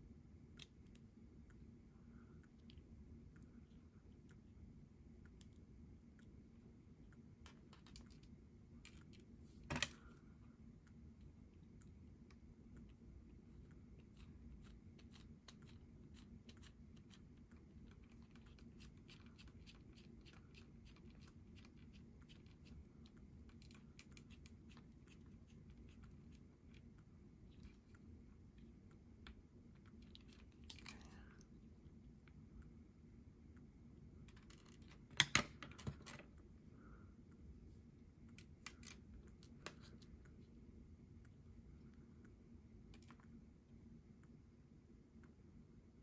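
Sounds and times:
faint low hum: 0.0 - 46.0.

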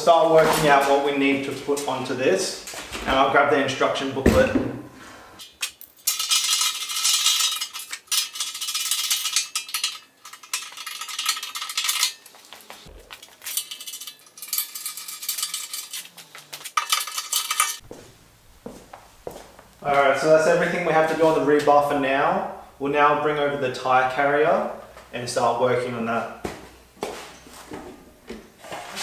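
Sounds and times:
metal parts clinking and rattling: 5.4 - 17.8.

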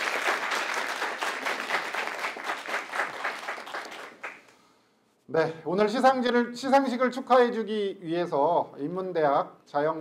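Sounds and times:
audience applauding: 0.0 - 4.5.

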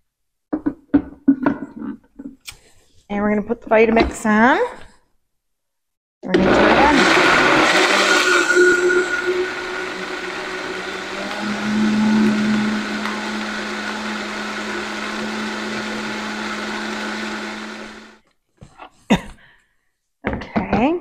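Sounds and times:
blender running: 6.3 - 18.2.

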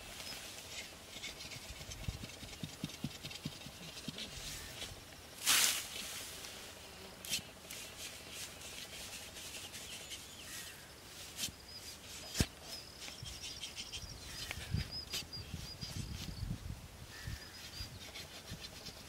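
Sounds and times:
dry grass rustling and crackling: 3.9 - 16.4.

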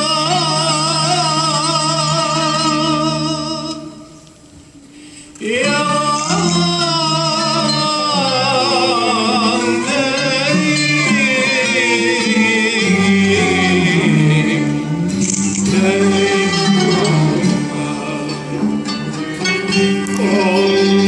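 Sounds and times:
man singing ornamented notes: 0.0 - 4.2, 5.4 - 21.0
classical ensemble of ud and strings: 5.4 - 21.0.

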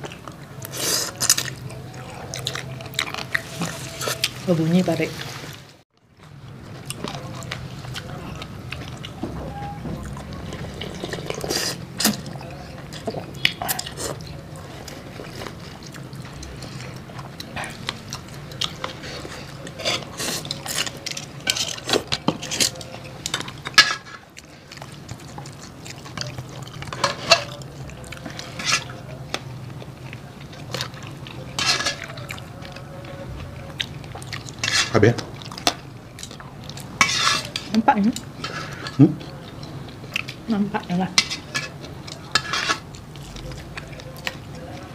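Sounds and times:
chewing: 0.0 - 44.9
utensils clinking against bowls: 6.9 - 44.9
slurping noodles: 10.5 - 12.2.

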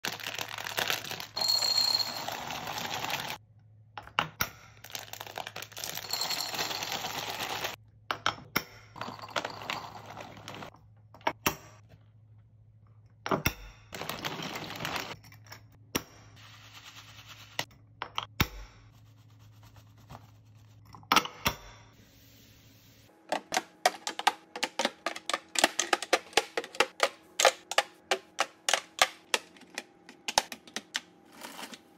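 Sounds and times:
plastic bags crinkling: 0.0 - 3.4, 4.9 - 7.8
seeds pouring into glass jars: 0.1 - 3.4, 5.3 - 7.8.

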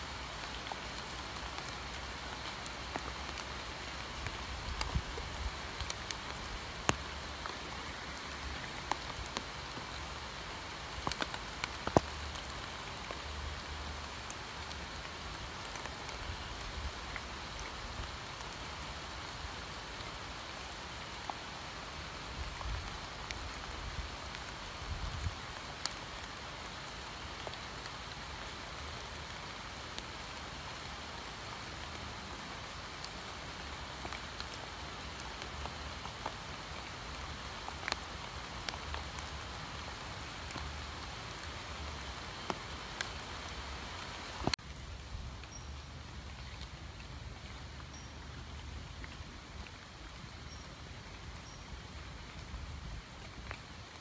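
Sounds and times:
steady rain hiss: 0.0 - 54.0
rain drop taps: 2.4 - 10.1, 10.9 - 13.4, 37.1 - 43.6.

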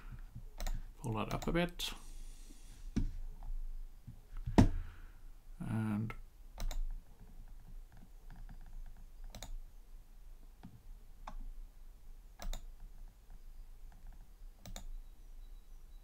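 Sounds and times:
computer mouse clicking: 0.6 - 1.5, 6.6 - 6.9, 8.3 - 9.6, 12.4 - 12.8, 13.9 - 14.9.

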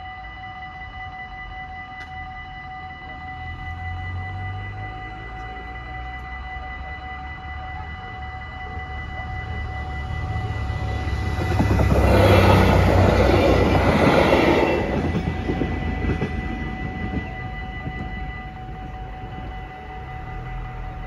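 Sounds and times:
level crossing warning bells: 0.0 - 21.0
train engine rumble: 1.8 - 21.0
train wheels rushing on rails: 9.4 - 20.8.

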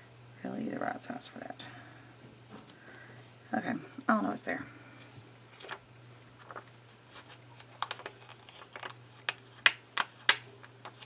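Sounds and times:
paper sheets clicking and tapping: 7.6 - 11.0.

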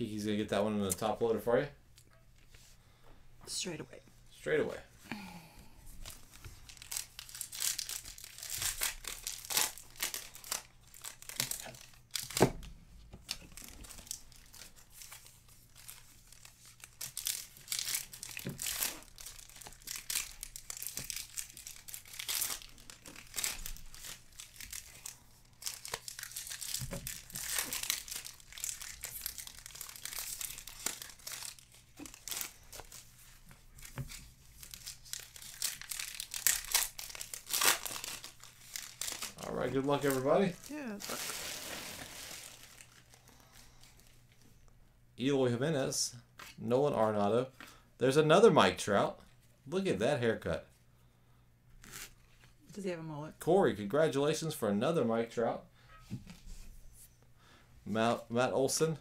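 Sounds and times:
wrappers crinkling: 6.0 - 12.4, 13.3 - 44.1.

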